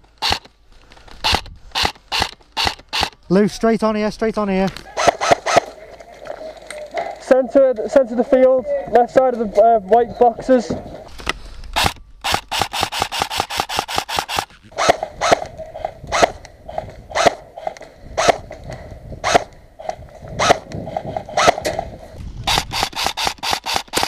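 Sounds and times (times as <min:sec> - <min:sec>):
airsoft rifle firing: 0:01.2 - 0:03.2, 0:04.9 - 0:05.8, 0:11.8 - 0:15.5, 0:21.2 - 0:21.9, 0:22.5 - 0:24.0.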